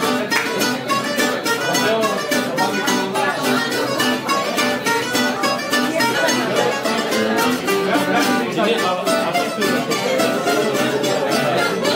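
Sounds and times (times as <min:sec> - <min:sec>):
acoustic guitar strumming: 0:00.0 - 0:11.9
bouzouki picking a melody: 0:00.0 - 0:11.9.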